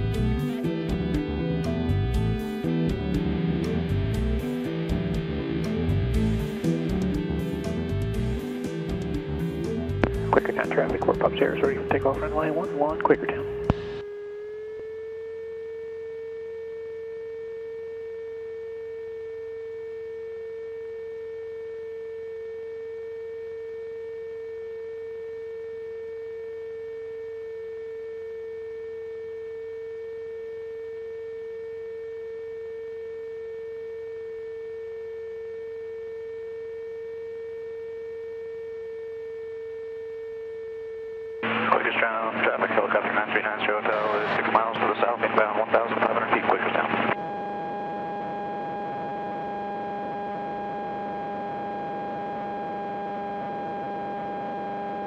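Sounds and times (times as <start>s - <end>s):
aircraft engine drone: 0.0s - 17.1s, 41.4s - 55.0s
steady electronic hum: 0.0s - 55.0s.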